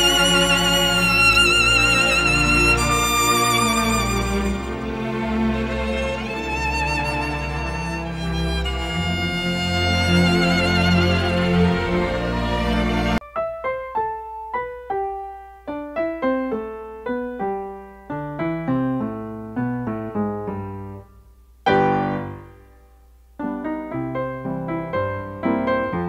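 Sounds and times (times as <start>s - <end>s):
string music: 0.0s - 13.2s
solo piano melody: 0.0s - 26.0s.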